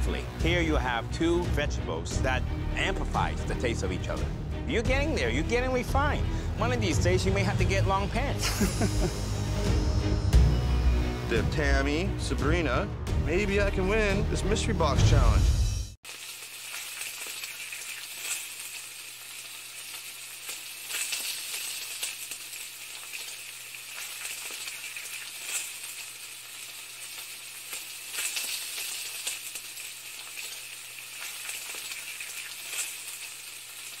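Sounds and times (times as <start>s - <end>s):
crackling sizzle with pops: 8.1s - 9.9s, 16.0s - 34.0s.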